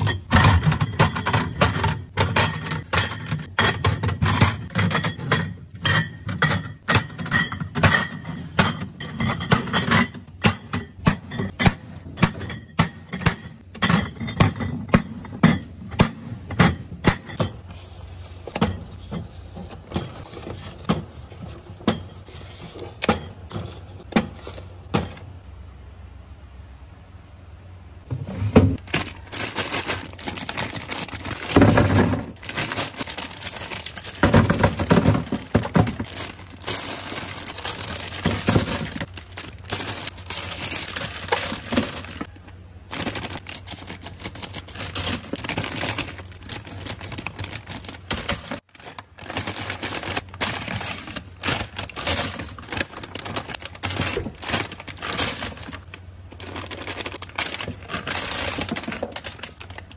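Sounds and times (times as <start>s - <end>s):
candies clattering in plastic drawer: 0.0s - 25.3s, 28.7s - 59.9s
candy wrappers crinkling: 28.8s - 59.9s.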